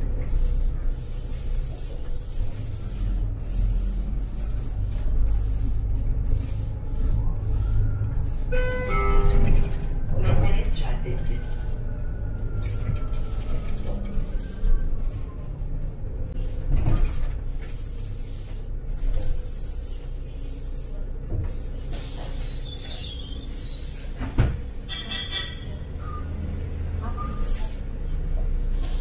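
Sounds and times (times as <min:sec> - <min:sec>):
bus engine and road rumble: 0:00.0 - 0:29.0
air hisses: 0:16.4 - 0:20.9.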